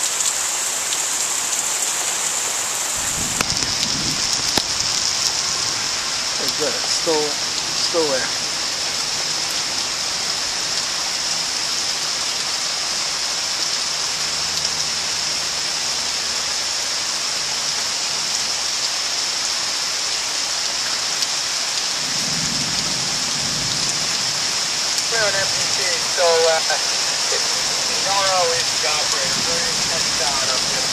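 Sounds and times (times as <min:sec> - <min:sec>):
heavy rain pouring: 0:00.0 - 0:30.9
low thunder rumble: 0:03.0 - 0:05.9, 0:26.8 - 0:30.9.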